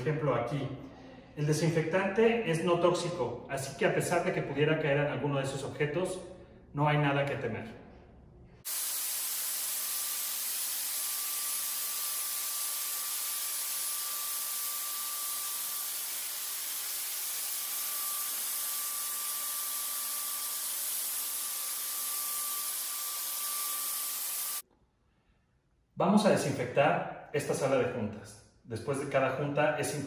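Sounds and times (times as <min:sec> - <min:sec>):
sprayer mist hissing: 0:08.6 - 0:24.6
high motor whine: 0:08.8 - 0:24.6.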